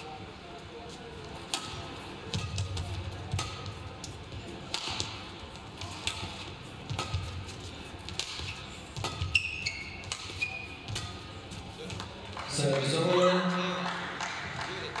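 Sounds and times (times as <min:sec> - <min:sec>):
rackets hitting shuttlecock: 0:01.4 - 0:12.6.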